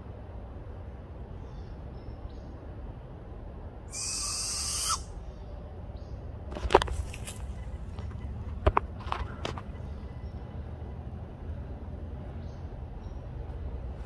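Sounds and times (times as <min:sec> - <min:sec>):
owl screeching: 0:03.9 - 0:05.2.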